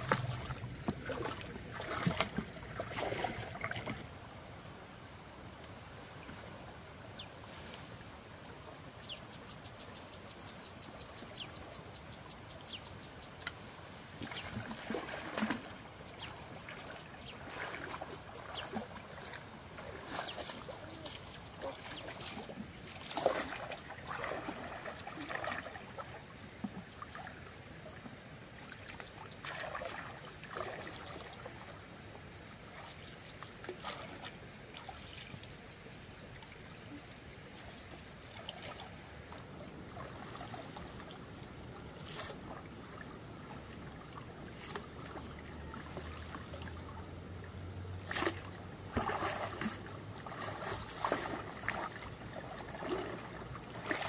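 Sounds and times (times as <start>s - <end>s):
shallow water splashing: 0.0s - 4.4s, 13.5s - 54.0s.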